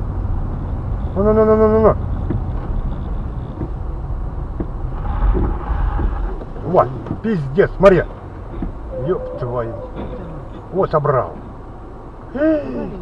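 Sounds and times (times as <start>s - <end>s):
car engine and tyres rumbling: 0.0s - 13.0s
man vocalizing: 12.3s - 13.0s.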